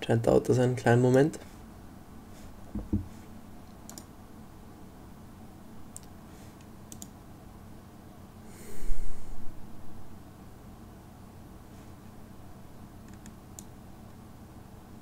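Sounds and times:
low steady hum: 0:00.0 - 0:15.0
faint computer clicks: 0:03.8 - 0:04.1, 0:05.9 - 0:07.2, 0:13.0 - 0:13.8
burst of breathy noise: 0:08.4 - 0:09.6.

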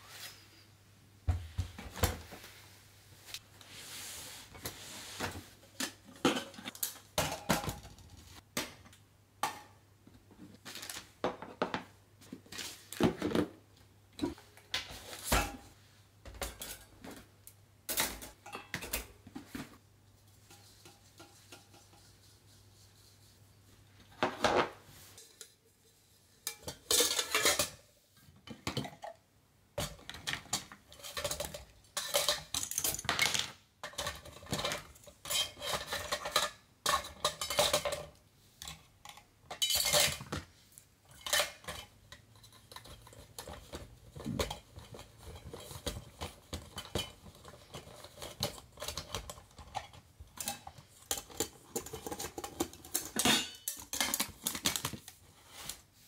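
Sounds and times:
metal pots clinking: 0:05.8 - 0:07.8, 0:17.9 - 0:19.6, 0:26.4 - 0:29.2, 0:29.8 - 0:40.4, 0:41.1 - 0:54.8.

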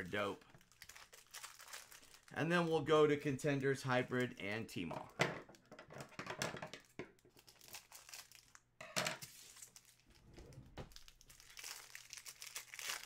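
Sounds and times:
plastic wrapper crinkling and tearing: 0:00.0 - 0:02.5, 0:06.8 - 0:10.1, 0:10.9 - 0:13.0.

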